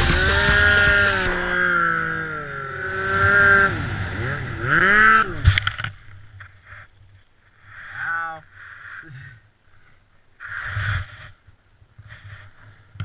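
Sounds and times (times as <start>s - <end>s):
snowmobile engine revving: 0.0s - 5.5s.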